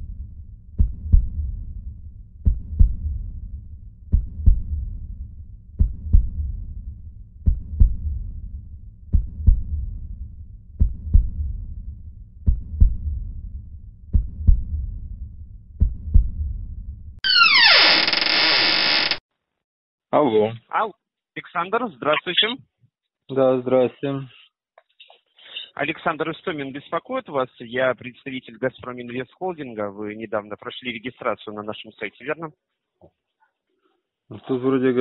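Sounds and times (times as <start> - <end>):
heartbeat thumps: 0.8 - 1.8, 2.4 - 17.0.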